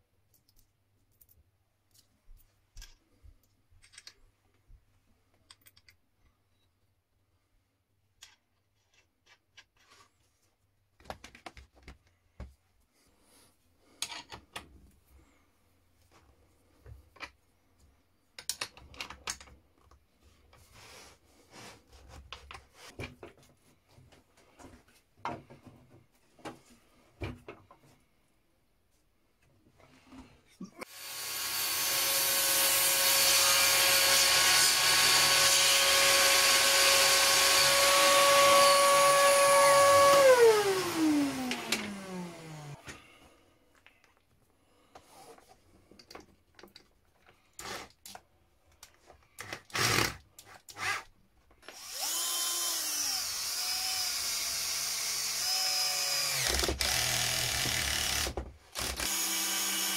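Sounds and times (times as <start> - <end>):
clinks of metal nuts and washers: 5.4 - 6.0.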